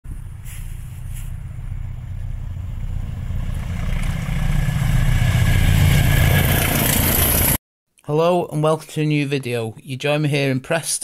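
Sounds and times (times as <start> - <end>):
diesel locomotive engine rumble: 0.1 - 7.6
wheels on rails: 0.2 - 7.6.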